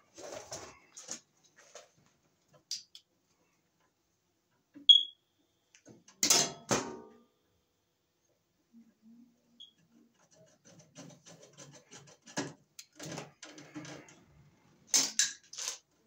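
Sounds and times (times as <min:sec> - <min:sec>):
tools rustling and clicking: 0:14.9 - 0:15.9.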